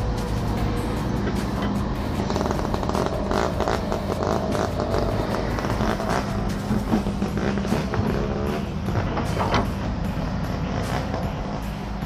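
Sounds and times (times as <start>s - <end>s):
excavator diesel engine: 0.0s - 12.0s
metal clanks and knocks: 3.9s - 11.4s.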